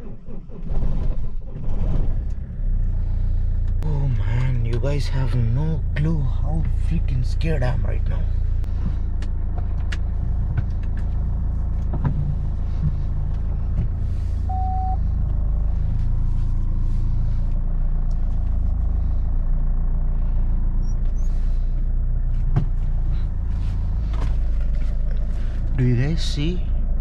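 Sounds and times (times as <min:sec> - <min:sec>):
car engine rumble from cabin: 0:00.0 - 0:27.0
short single-tone beep: 0:14.5 - 0:15.0.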